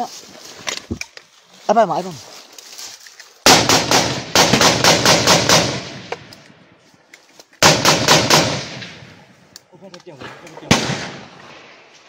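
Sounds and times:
rapid rifle fire: 3.5 - 6.1, 7.6 - 9.0.

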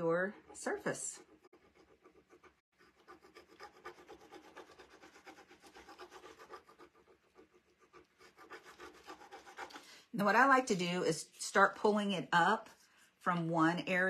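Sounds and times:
tool scratching over paper: 0.0 - 9.9.

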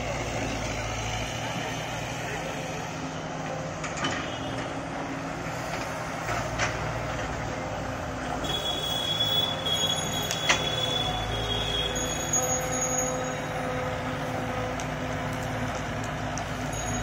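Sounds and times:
excavator diesel engine running: 0.0 - 17.0
high squeal: 8.4 - 13.9.

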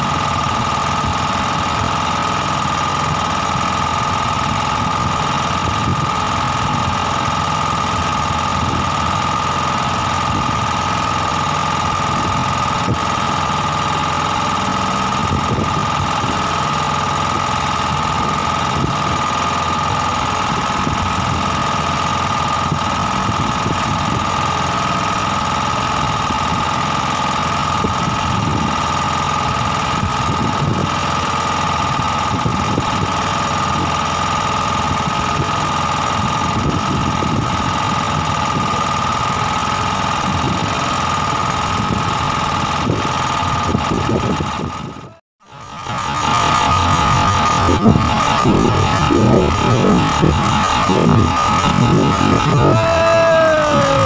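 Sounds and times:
small engine idling with knocking: 0.0 - 54.0
high whine: 46.1 - 54.0.

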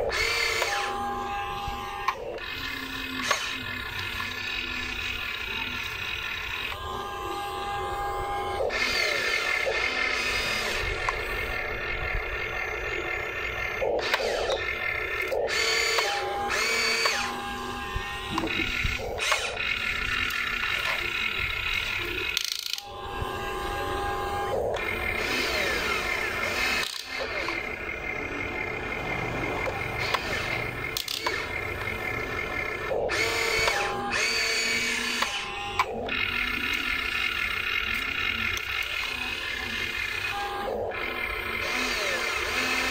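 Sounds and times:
toy excavator motors whining: 0.0 - 42.9.

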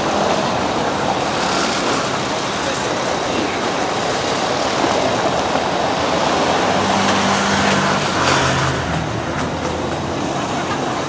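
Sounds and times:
crowd voices: 0.0 - 11.0.

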